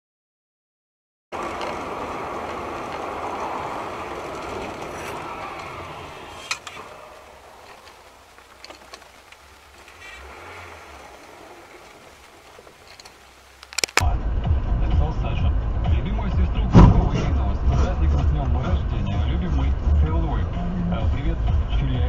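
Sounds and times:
road and wind noise in car: 0:01.3 - 0:22.0
faint clicks: 0:01.4 - 0:14.0
sharp knock: 0:16.7 - 0:17.4.

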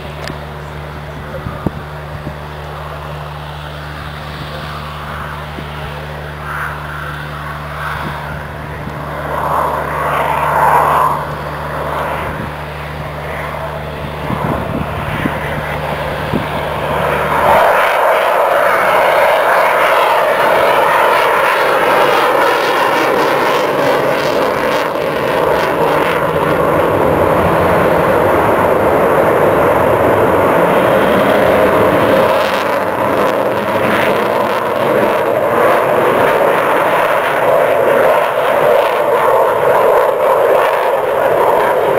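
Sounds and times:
jet engines rushing: 0:00.0 - 0:41.9.

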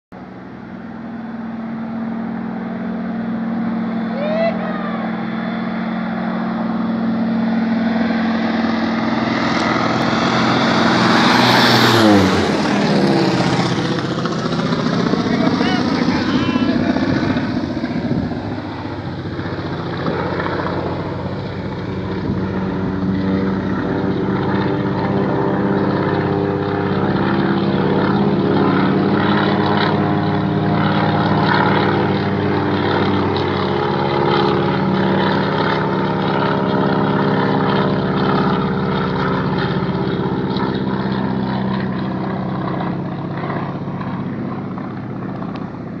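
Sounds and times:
propeller planes droning: 0:00.1 - 0:46.0.

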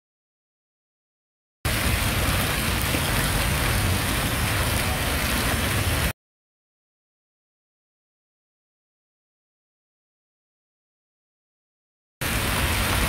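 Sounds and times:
fountain water splashing: 0:01.7 - 0:06.2, 0:12.2 - 0:13.0.

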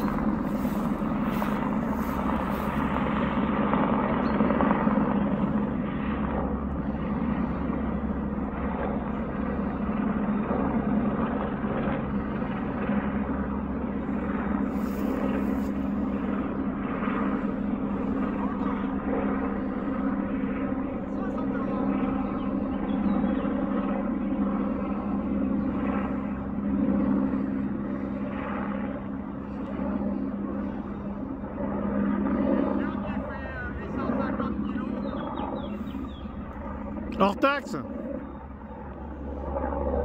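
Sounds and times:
helicopter flying overhead: 0:00.0 - 0:40.0.

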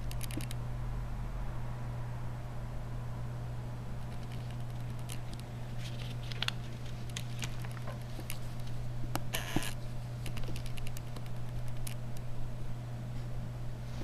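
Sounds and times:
plastic packet crinkle: 0:04.1 - 0:08.8.

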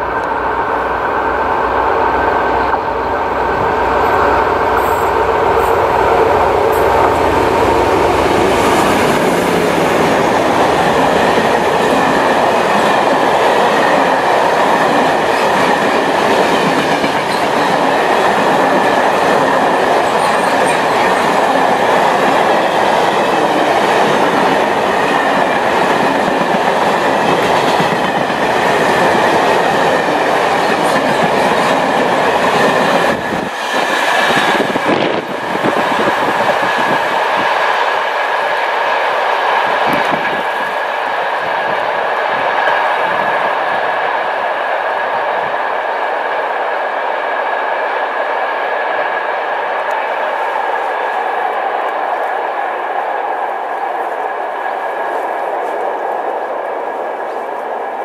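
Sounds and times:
train wheels running on rails: 0:00.0 - 0:58.0.

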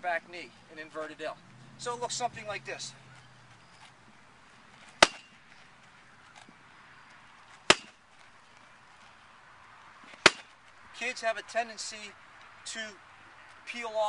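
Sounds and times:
wooden stake whacking punching bag: 0:04.9 - 0:05.4, 0:07.6 - 0:08.0, 0:10.1 - 0:10.6.

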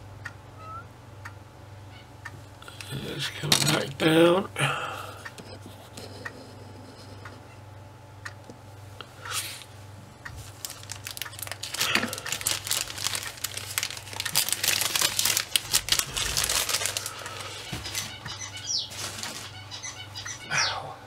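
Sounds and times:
plastic bag crinkling: 0:10.4 - 0:19.6.

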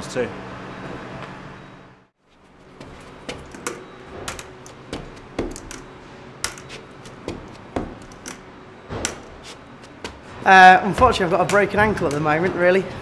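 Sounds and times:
crutch tips knocking on concrete steps: 0:02.8 - 0:08.4, 0:09.0 - 0:10.2, 0:10.9 - 0:12.7.

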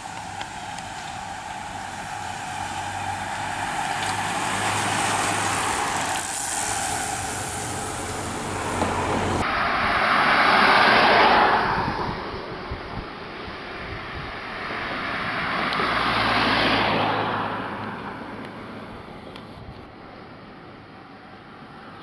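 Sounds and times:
car driving up: 0:00.0 - 0:12.5
bicycles riding past: 0:00.0 - 0:19.2.

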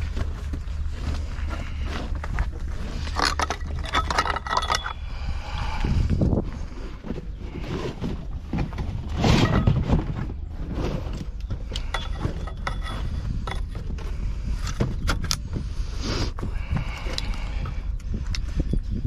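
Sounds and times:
metal oar sections clinking: 0:03.0 - 0:05.4, 0:11.2 - 0:15.4.

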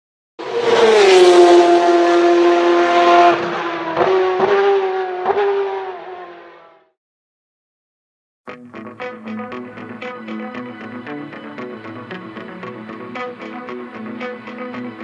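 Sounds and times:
high-revving racing engine: 0:00.4 - 0:06.9.

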